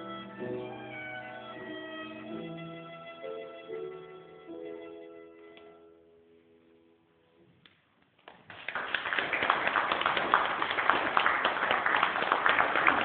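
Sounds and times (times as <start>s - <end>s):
violin and piano chord: 0.0s - 5.9s
audience applause: 8.2s - 13.0s.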